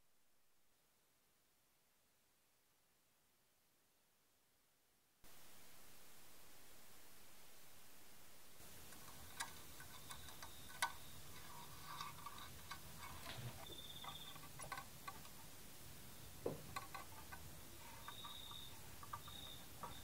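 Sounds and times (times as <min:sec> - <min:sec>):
small clicks and taps on metal: 0:08.9 - 0:15.4, 0:16.4 - 0:20.0.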